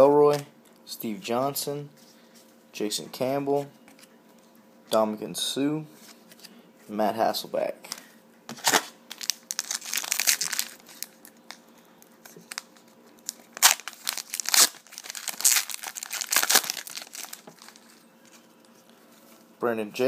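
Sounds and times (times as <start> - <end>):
foil wrapper tearing and crinkling: 8.6 - 11.2, 12.4 - 17.8.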